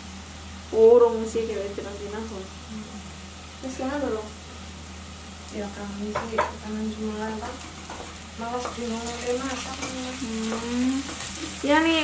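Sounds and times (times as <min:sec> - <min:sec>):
food frying in a pan: 0:00.0 - 0:12.0
woman talking: 0:00.7 - 0:04.4, 0:05.5 - 0:07.6, 0:08.4 - 0:12.0.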